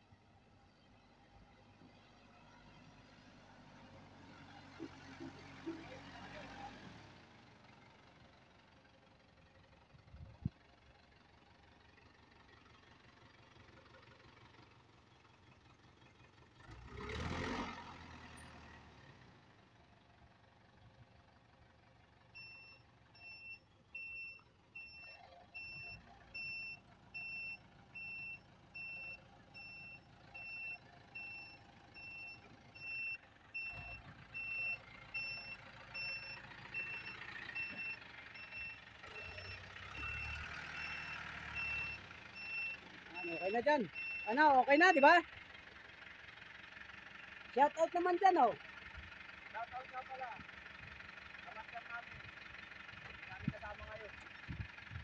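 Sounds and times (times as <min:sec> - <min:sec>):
diesel engine running: 0:00.0 - 0:55.0
truck reversing alarm beeping: 0:22.3 - 0:45.2.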